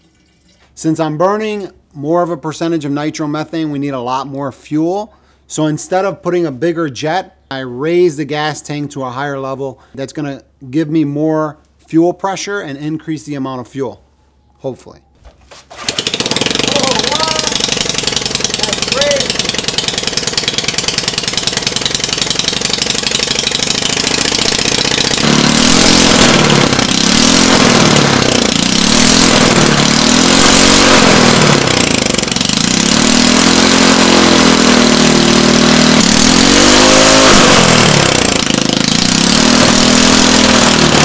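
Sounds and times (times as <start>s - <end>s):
small engine revving: 15.7s - 41.0s.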